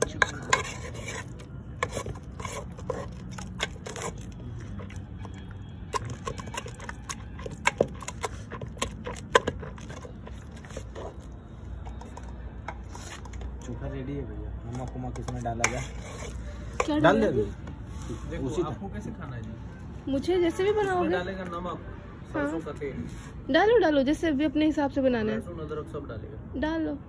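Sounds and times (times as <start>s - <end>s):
cooking utensils clicking and scraping: 0.0s - 13.8s, 14.7s - 17.1s.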